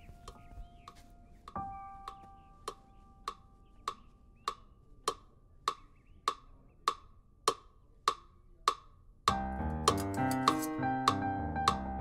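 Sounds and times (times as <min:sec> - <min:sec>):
metronome clicking: 0:00.2 - 0:11.8.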